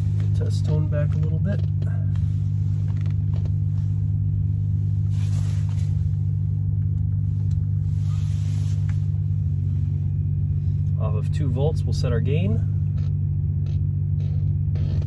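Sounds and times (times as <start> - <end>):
jacket rustling: 0.0 - 10.7
steady bass test tone: 0.0 - 15.0.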